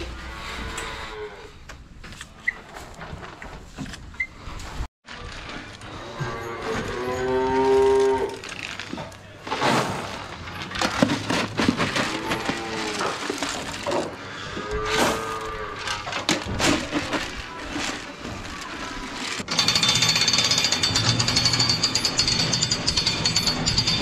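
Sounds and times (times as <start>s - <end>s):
rustling: 2.0s - 19.4s
calves mooing: 6.0s - 8.4s.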